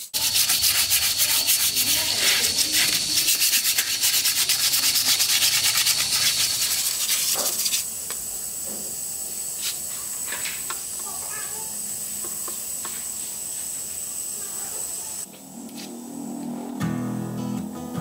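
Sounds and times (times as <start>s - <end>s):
sandpaper rubbing on cement: 0.0s - 7.9s
steady hiss: 0.0s - 15.3s.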